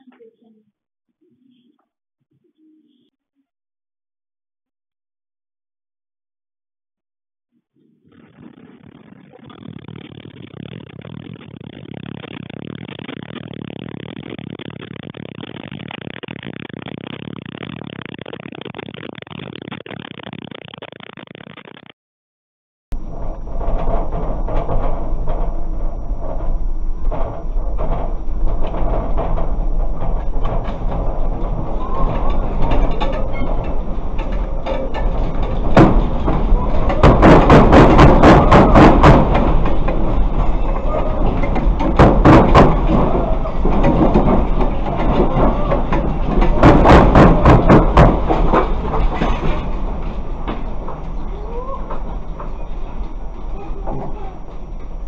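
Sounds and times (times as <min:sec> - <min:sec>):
loud steady rumbling: 0:08.2 - 0:20.7, 0:23.0 - 0:55.0
rattling and clattering knocks: 0:23.0 - 0:51.3.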